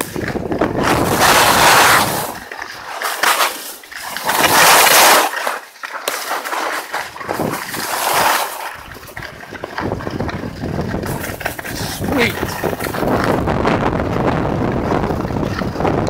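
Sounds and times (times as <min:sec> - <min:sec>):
wind buffeting microphone: 0:00.0 - 0:02.7, 0:07.1 - 0:16.0
skis scraping on snow: 0:00.0 - 0:13.5.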